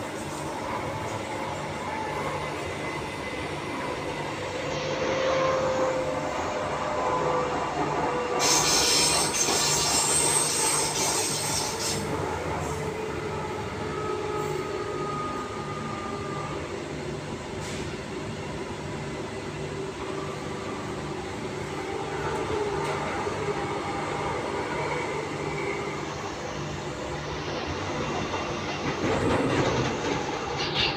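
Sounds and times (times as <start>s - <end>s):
train rolling noise inside carriage: 0.0s - 30.9s
loud high-pitched hiss: 8.4s - 12.0s.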